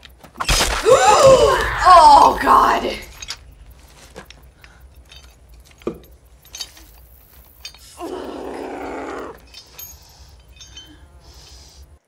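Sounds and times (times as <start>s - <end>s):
metal trap clinking: 2.1s - 8.0s, 8.8s - 11.0s.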